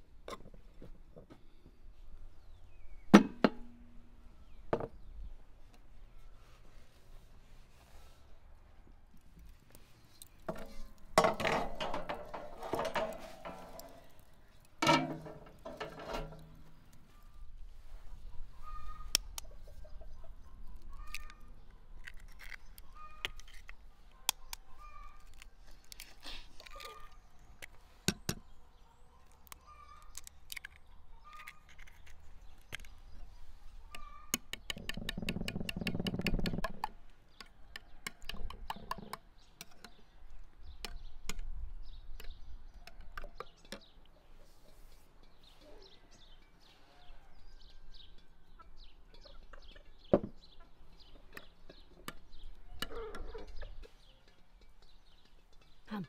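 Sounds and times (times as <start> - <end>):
chickens clucking: 18.0 - 21.7, 33.7 - 34.4, 42.7 - 55.6.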